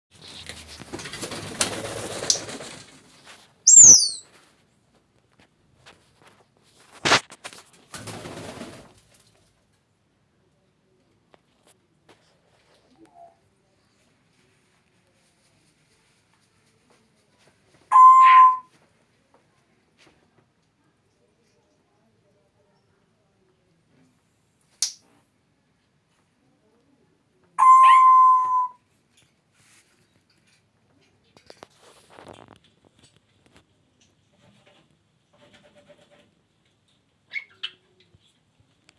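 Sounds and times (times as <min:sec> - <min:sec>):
parrot wings flapping: 0:00.2 - 0:03.2, 0:07.0 - 0:09.0
high falling parrot whistle: 0:03.7 - 0:04.2, 0:17.9 - 0:18.6, 0:27.6 - 0:28.8.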